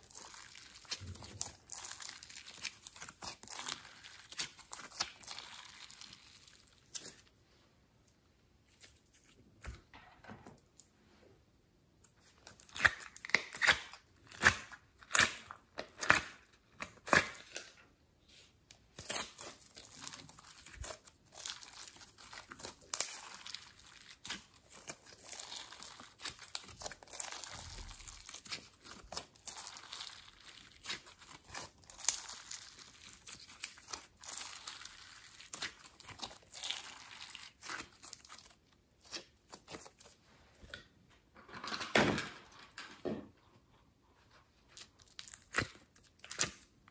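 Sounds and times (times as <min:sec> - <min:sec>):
slime crackling and popping: 0:00.0 - 0:07.2, 0:19.0 - 0:40.2, 0:44.8 - 0:46.8.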